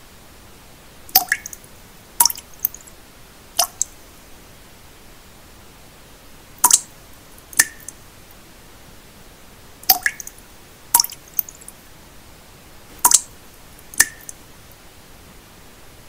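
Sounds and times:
faint pink noise hiss: 0:00.0 - 0:16.0
water drops plopping: 0:01.1 - 0:01.6, 0:02.2 - 0:02.8, 0:03.6 - 0:03.9, 0:06.6 - 0:06.9, 0:07.6 - 0:08.0, 0:09.9 - 0:10.3, 0:11.0 - 0:11.5, 0:13.0 - 0:13.3, 0:14.0 - 0:14.4.

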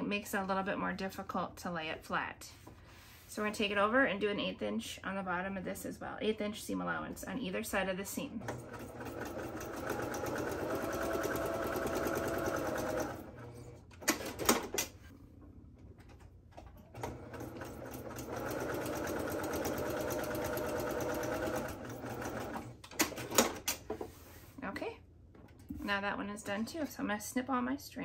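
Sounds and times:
sewing machine stitching: 0:08.4 - 0:14.9, 0:16.8 - 0:23.8.

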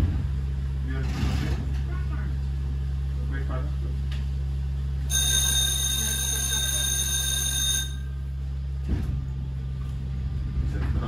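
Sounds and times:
low electrical hum: 0:00.0 - 0:11.0
tram signal bell ringing: 0:05.1 - 0:08.5.

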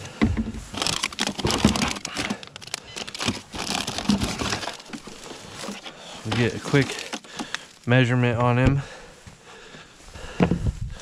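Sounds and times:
plastic packets crinkling: 0:00.7 - 0:08.0.

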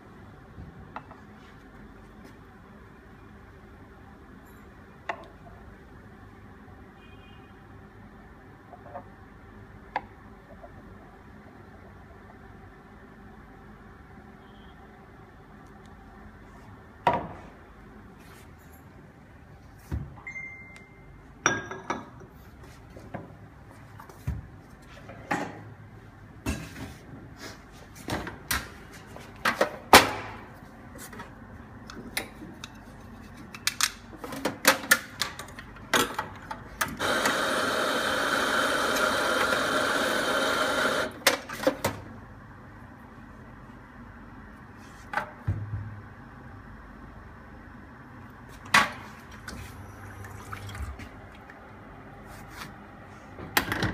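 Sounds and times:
espresso grinder running: 0:37.0 - 0:41.2.

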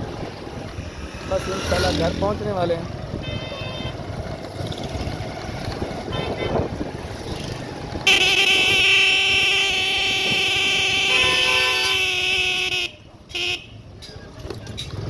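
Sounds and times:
loud vehicle horn blaring: 0:03.2 - 0:04.0, 0:06.0 - 0:06.8, 0:08.0 - 0:13.8
motorcycle engine on dirt road: 0:03.9 - 0:11.8.

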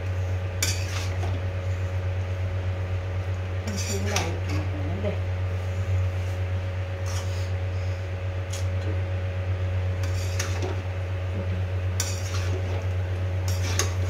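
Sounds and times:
steady low hum: 0:00.0 - 0:14.0
metal spoon stirring pasta in pan: 0:00.6 - 0:01.3, 0:03.7 - 0:04.7, 0:10.0 - 0:10.8, 0:12.0 - 0:14.0.

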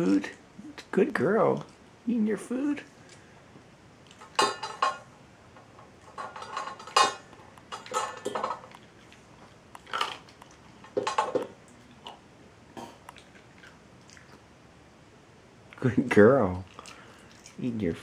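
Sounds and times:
dog eating from metal bowl: 0:04.1 - 0:12.2.

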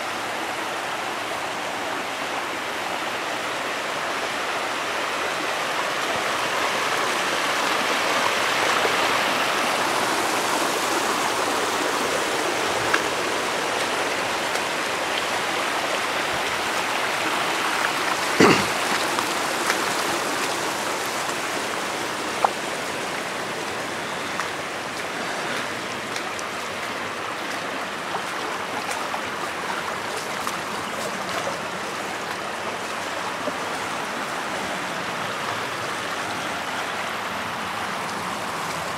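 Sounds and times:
water rushing over ground: 0:00.0 - 0:38.9.

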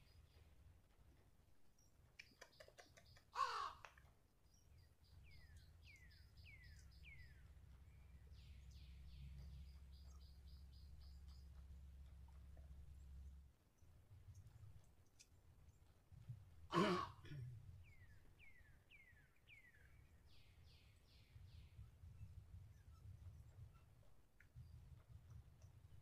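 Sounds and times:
sharp clicks: 0:02.1 - 0:04.1.

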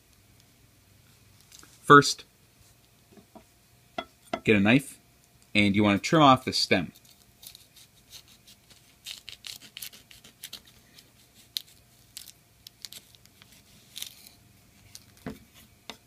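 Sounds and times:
knife crunching through vegetable: 0:07.4 - 0:14.4.

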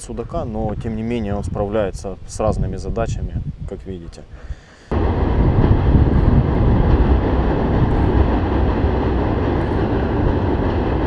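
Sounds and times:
heavy vehicle rumbling over bridge: 0:04.9 - 0:11.0.

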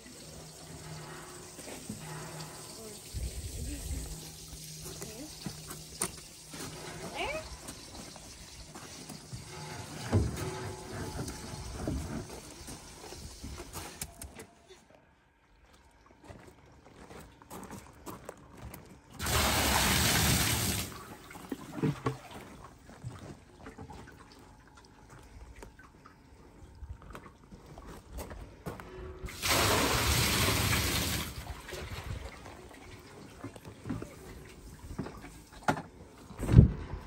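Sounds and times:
water poured into tub: 0:19.2 - 0:22.4, 0:29.3 - 0:35.6.

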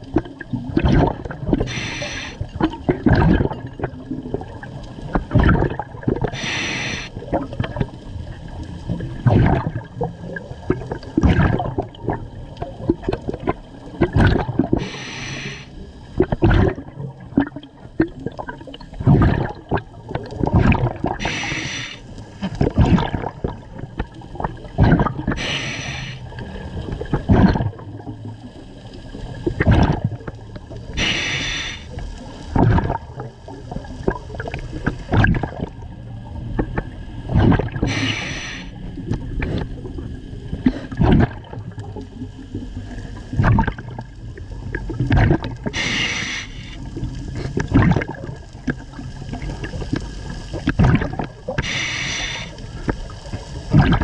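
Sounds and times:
exhaled bubbles gurgling: 0:00.0 - 0:54.0
regulator inhalation hiss: 0:01.7 - 0:02.4, 0:06.3 - 0:07.2, 0:14.8 - 0:15.8, 0:21.2 - 0:22.1, 0:25.4 - 0:26.2, 0:31.0 - 0:31.9, 0:37.9 - 0:38.8, 0:45.8 - 0:46.8, 0:51.6 - 0:52.6.

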